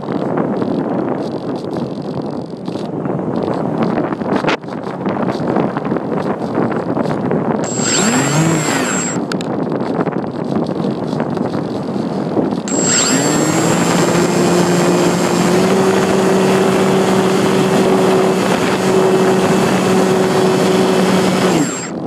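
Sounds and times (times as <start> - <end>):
model plane motor whining: 7.6 - 9.4, 12.7 - 22.0.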